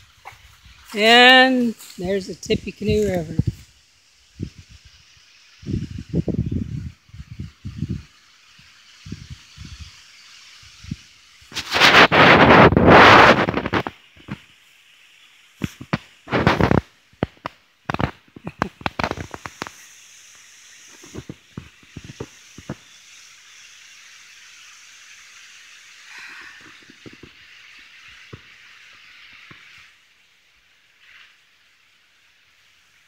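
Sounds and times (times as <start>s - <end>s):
steady outdoor hiss: 0.0s - 33.0s
phone microphone handling crackles: 11.5s - 14.4s, 15.6s - 19.8s.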